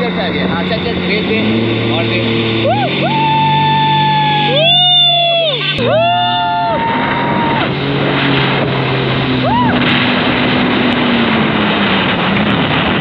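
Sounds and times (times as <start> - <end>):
rush of spray and wind: 0.0 - 4.6, 5.5 - 13.0
jet ski engine hum: 0.0 - 13.0
short rising-falling cry: 2.6 - 7.8, 9.4 - 9.8.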